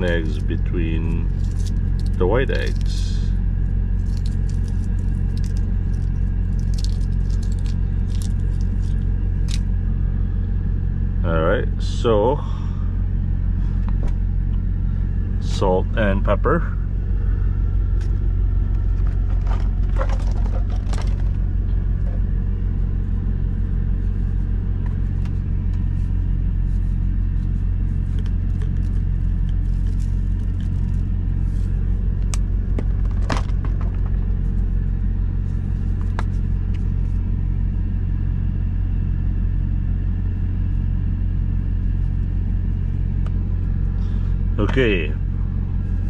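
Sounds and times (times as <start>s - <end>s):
diesel engine idling: 0.0s - 46.0s.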